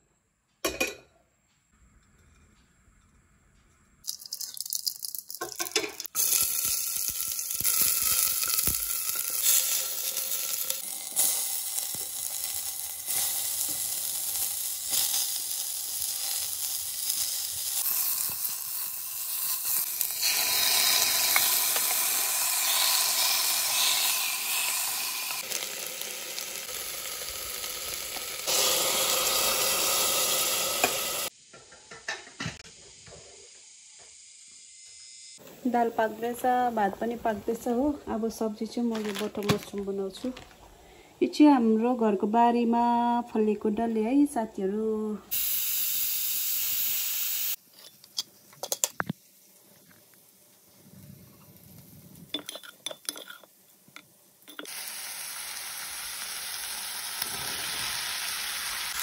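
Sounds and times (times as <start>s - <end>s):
hot oil sizzling: 4.0s - 37.8s, 45.3s - 50.8s, 54.4s - 59.0s.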